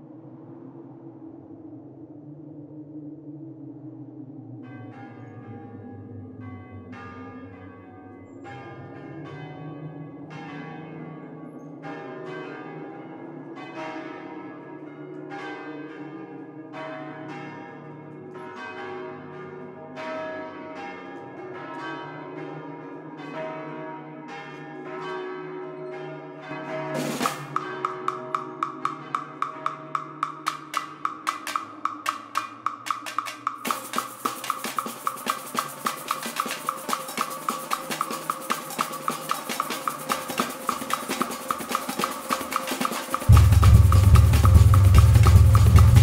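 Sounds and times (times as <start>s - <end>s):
bells ringing: 4.6s - 46.0s
low steady drone: 43.2s - 46.0s.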